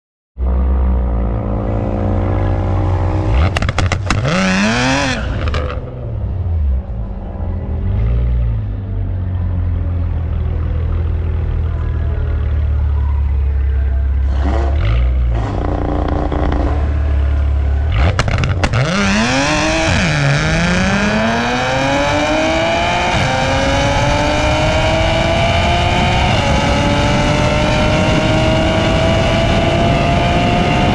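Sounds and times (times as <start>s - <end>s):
car engine revving and accelerating: 0.4s - 13.0s, 14.1s - 30.9s
engine exhaust cracks: 3.4s - 4.3s, 17.9s - 18.9s
supercharger whine: 11.2s - 30.9s
wind rush: 23.4s - 30.9s.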